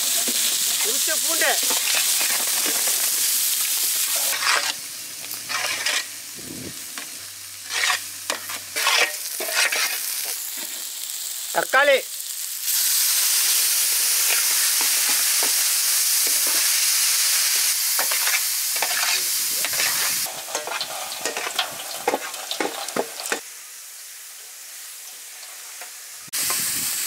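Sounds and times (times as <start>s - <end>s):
tomatoes sizzling in oil: 0.0s - 27.0s
spoon scraping a pan: 4.1s - 4.8s, 5.5s - 6.1s, 7.0s - 10.8s, 18.0s - 23.4s.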